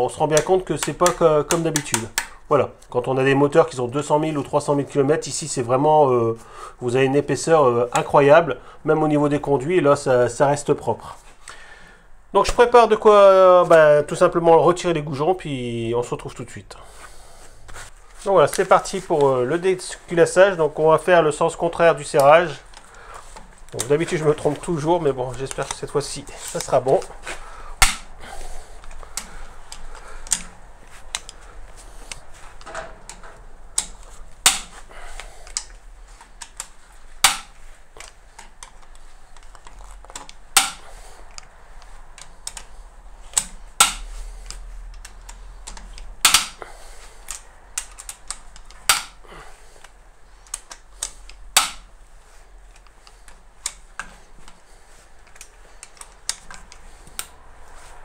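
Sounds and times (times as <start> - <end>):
bolts cracking loose: 0.0 - 2.5, 22.0 - 28.2, 28.8 - 31.4, 32.0 - 51.9, 55.2 - 57.4.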